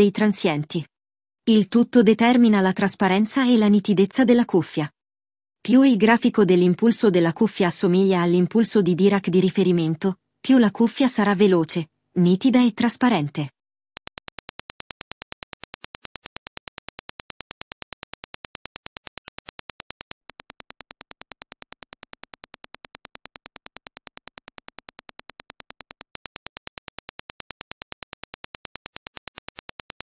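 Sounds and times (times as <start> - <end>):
clicks reproduced by headphones: 14.0 - 30.0.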